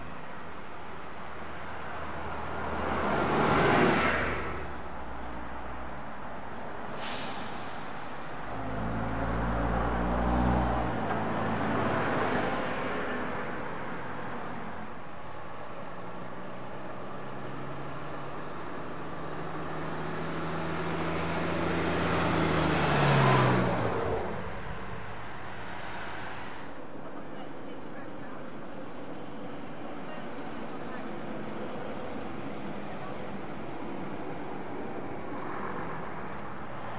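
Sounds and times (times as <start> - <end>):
diesel buses driving past: 0.0 - 36.9
air brake hiss: 6.9 - 8.6, 24.9 - 26.8.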